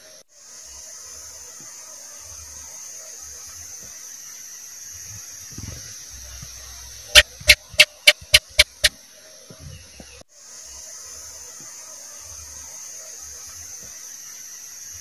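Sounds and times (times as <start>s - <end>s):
steady high hiss: 0.0s - 15.0s
gecko chirping: 7.1s - 8.9s.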